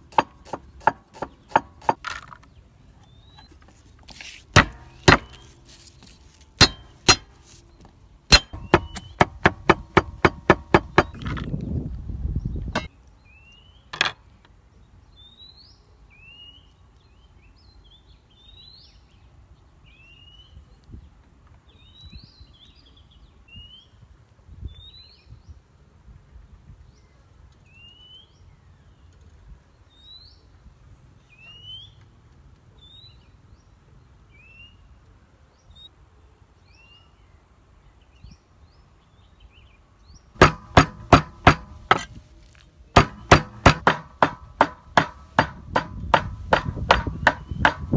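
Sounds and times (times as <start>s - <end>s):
cleaver chopping on wooden block: 0.0s - 2.4s, 4.5s - 5.9s, 6.6s - 7.4s, 8.3s - 11.4s, 40.4s - 42.2s, 43.0s - 47.9s
birds chirping: 0.0s - 24.0s, 32.8s - 47.9s.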